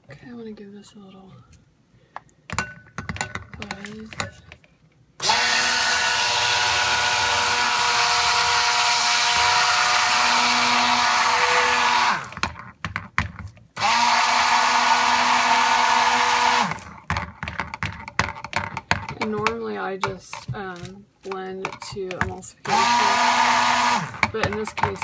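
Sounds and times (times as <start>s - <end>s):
stick blender running: 5.2s - 12.6s, 13.8s - 17.2s, 22.2s - 25.0s.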